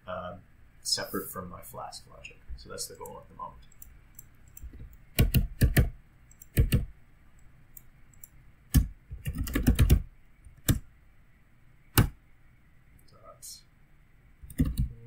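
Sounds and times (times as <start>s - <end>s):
computer keyboard typing: 3.7s - 6.9s, 8.1s - 10.8s, 14.4s - 15.0s.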